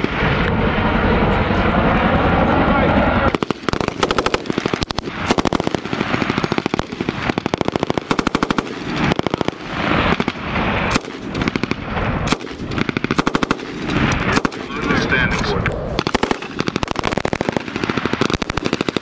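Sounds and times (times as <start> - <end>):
single gunshots: 3.3 - 14.9, 16.0 - 19.0
machine gun bursts: 12.3 - 15.0, 16.0 - 19.0.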